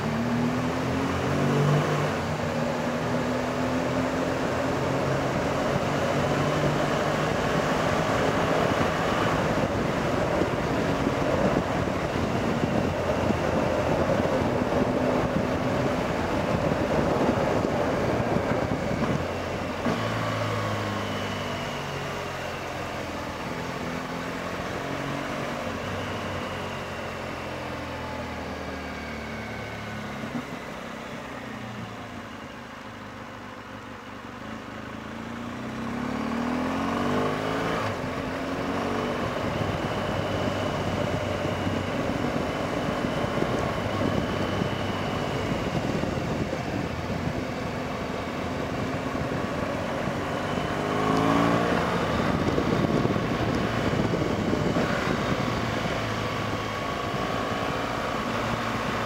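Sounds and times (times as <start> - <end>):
heavy wind noise: 5.0 - 21.0, 37.6 - 59.0
motorcycle engine running: 34.4 - 59.0.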